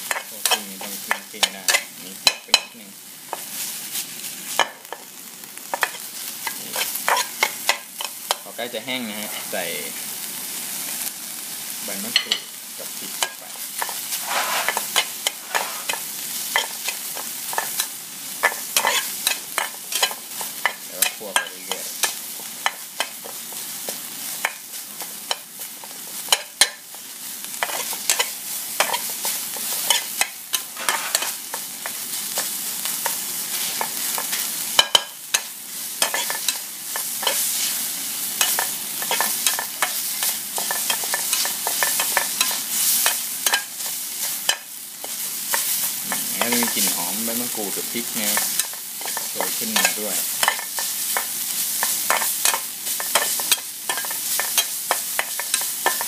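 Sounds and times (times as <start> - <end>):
food sizzling: 0.0 - 56.0
metal spatula scraping frying pan: 13.2 - 16.8, 29.8 - 31.4.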